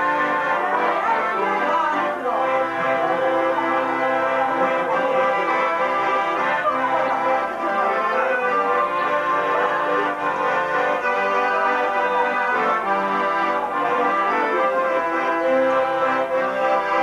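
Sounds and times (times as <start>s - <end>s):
accordion dance music: 0.0s - 17.0s.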